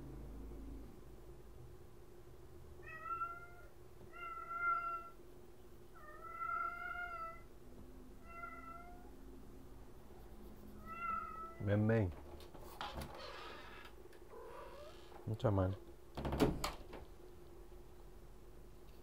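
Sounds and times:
cat meowing: 0:02.8 - 0:05.2, 0:06.0 - 0:07.5, 0:08.2 - 0:09.2, 0:10.8 - 0:11.7.

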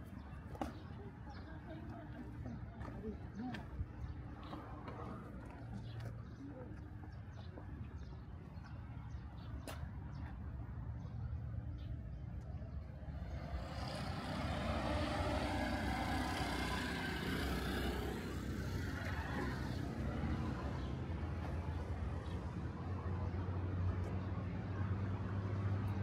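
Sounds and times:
low traffic rumble: 0:00.0 - 0:26.0
vehicle passing by: 0:12.8 - 0:26.0.

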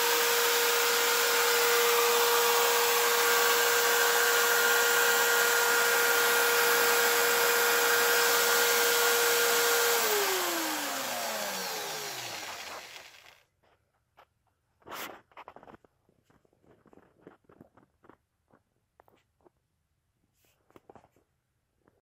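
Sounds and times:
electric drill whining: 0:00.0 - 0:13.4.

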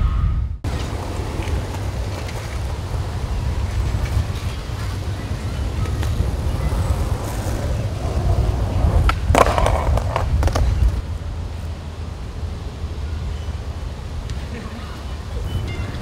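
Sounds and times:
skateboard rolling on pavement: 0:00.6 - 0:16.0
skateboard clacks and rattling: 0:03.9 - 0:11.0.

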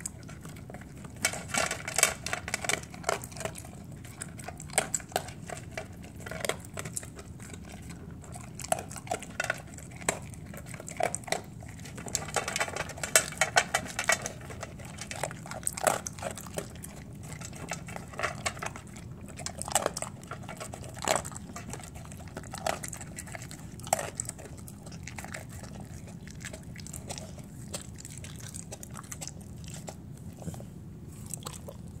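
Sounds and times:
dog crunching kibble: 0:00.0 - 0:32.0.

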